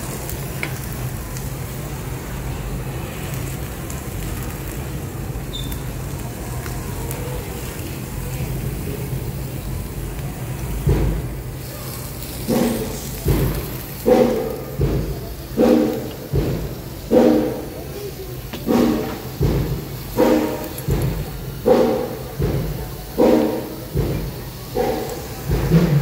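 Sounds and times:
restaurant background hum: 0.0 - 26.0.

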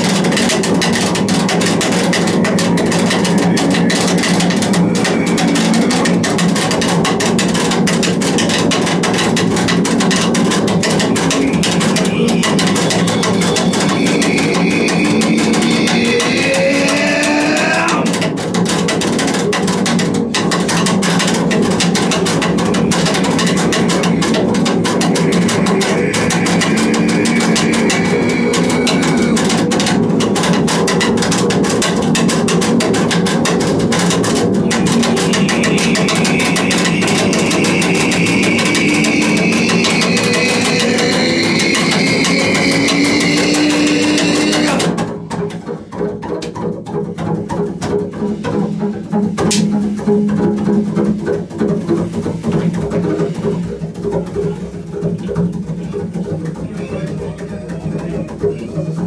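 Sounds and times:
double bass bowed scratchily: 0.0 - 59.0
high pitched sliding line: 2.0 - 9.1, 10.2 - 18.1, 22.2 - 30.2, 34.5 - 44.9.

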